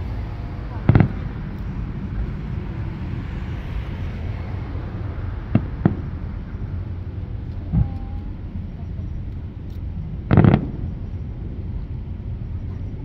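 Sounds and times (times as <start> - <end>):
low outdoor rumble: 0.0 - 13.0
distant firework booms: 0.5 - 3.2, 5.4 - 6.6, 10.2 - 11.2.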